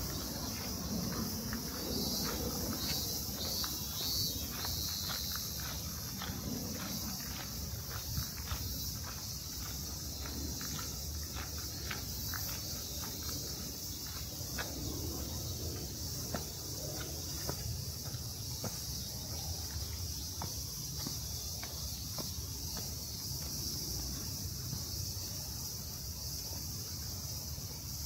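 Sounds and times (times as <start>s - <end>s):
footsteps walking: 0.0s - 23.7s
low city rumble: 0.0s - 25.6s
insects chirping: 0.0s - 28.0s.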